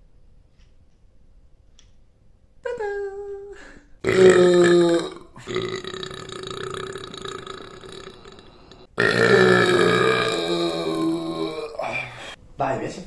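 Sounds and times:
man belching loudly: 4.0s - 12.1s.

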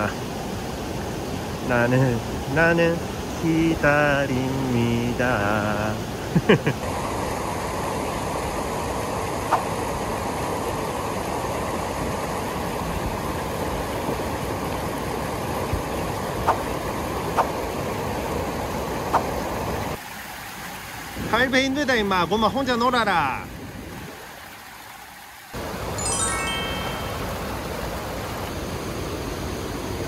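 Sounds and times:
stream cascade rushing: 0.0s - 30.0s.

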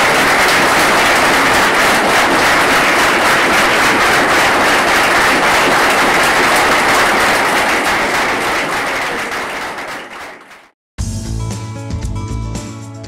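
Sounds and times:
crowd applauding: 0.0s - 10.8s.

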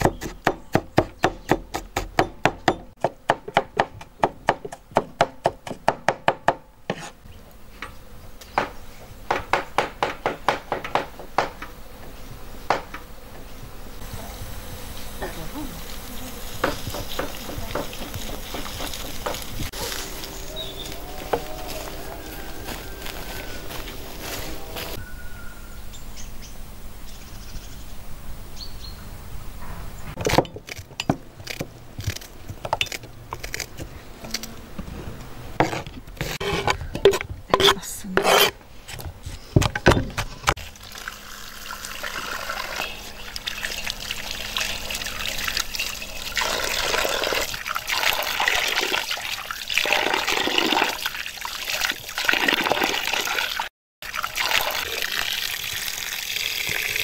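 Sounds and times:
cleaver chopping onions: 0.0s - 7.1s, 16.6s - 19.9s
hands washing meat in water: 40.6s - 57.0s
water running into steel bowl: 40.6s - 57.0s.

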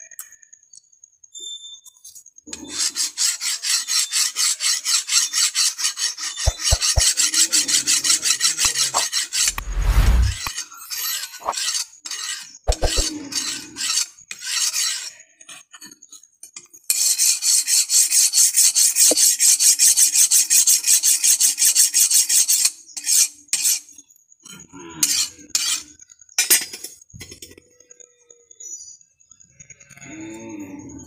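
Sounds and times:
file rasping on steel blade: 2.7s - 9.7s, 10.3s - 15.2s, 16.9s - 23.9s, 25.0s - 25.9s.

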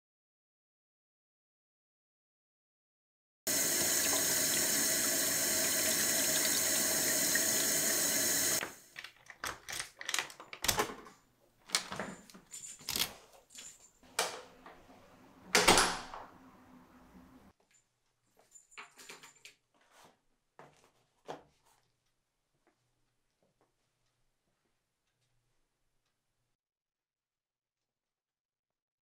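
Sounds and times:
water running from tap: 3.5s - 8.8s.

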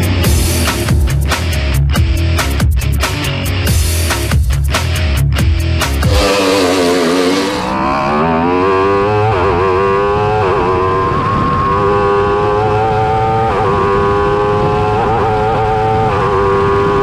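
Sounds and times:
engine revving hard: 6.0s - 17.0s.

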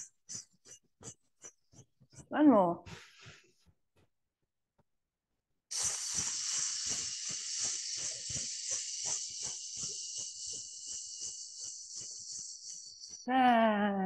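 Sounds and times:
long hissing breath out: 5.7s - 13.3s.

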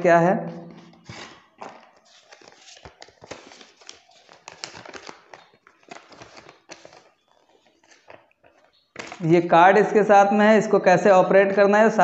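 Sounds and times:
paper rustling and crinkling: 0.5s - 9.2s.

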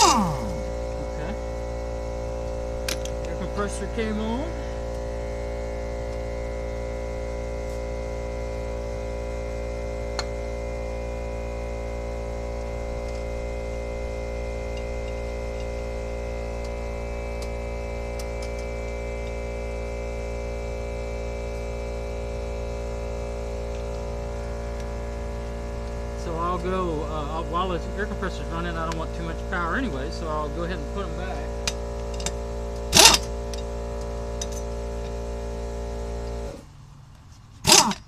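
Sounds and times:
air compressor running: 0.0s - 38.0s
sharp click: 31.7s - 33.6s, 37.7s - 38.0s.

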